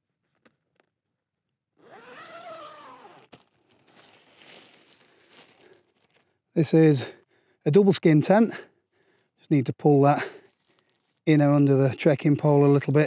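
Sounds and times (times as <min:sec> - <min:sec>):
tent zipper pulled open: 0:01.8 - 0:04.5.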